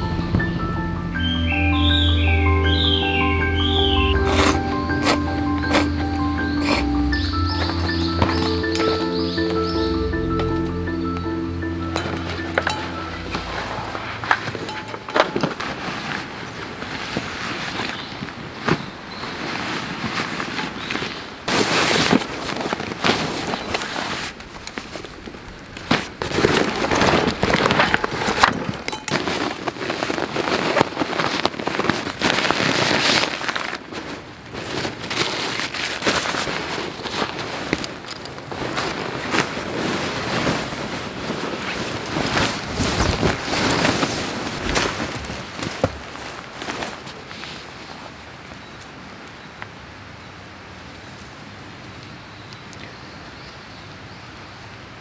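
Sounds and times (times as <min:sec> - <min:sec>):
fabric rustling and crinkling: 0:12.0 - 0:49.0.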